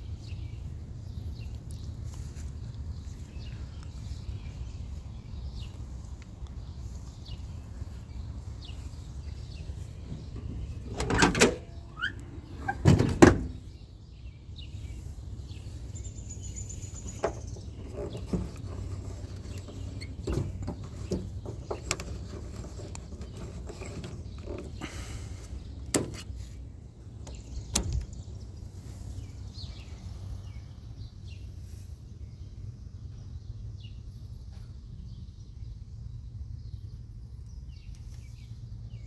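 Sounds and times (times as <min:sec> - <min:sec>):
car door latch clunks: 0:10.0 - 0:13.6, 0:25.9 - 0:26.4, 0:27.2 - 0:28.2
door squeak: 0:10.9 - 0:13.5.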